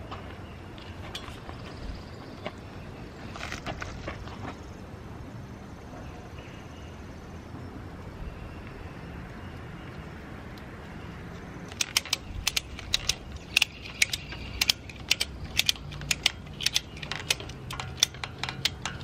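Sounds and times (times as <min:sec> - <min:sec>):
ratchet strap clicking: 0:11.7 - 0:19.0.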